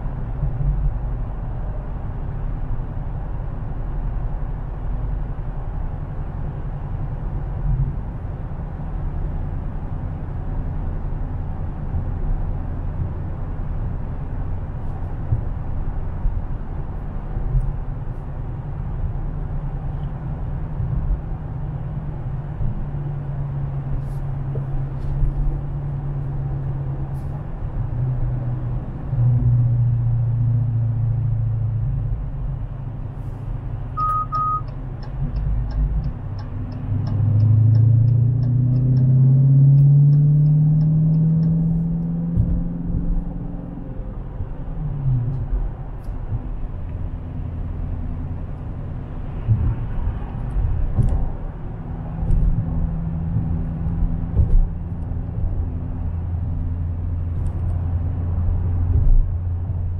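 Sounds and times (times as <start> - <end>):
car engine droning: 0.0 - 59.9
tyre and road rumble: 31.9 - 59.9.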